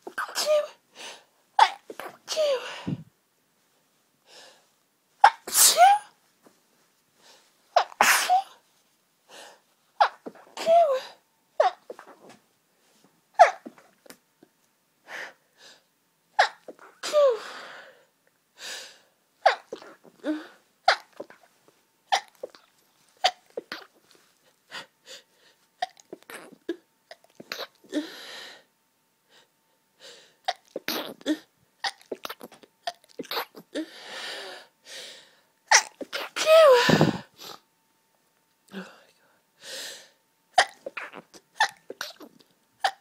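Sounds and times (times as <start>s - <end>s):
woman sneezing: 1.6s - 3.0s, 5.2s - 6.1s, 7.8s - 8.6s, 16.4s - 17.6s, 35.7s - 37.3s.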